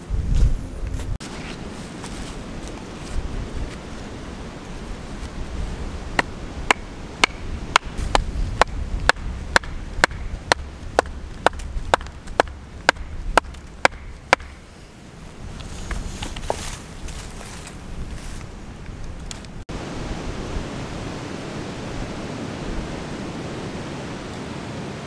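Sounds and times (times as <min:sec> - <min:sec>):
axe knocking on wooden stake: 0:06.2 - 0:14.6.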